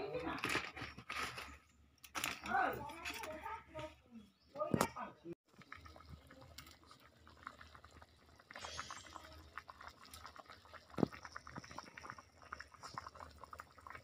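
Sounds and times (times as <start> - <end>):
curry bubbling in a pot: 5.4 - 14.0.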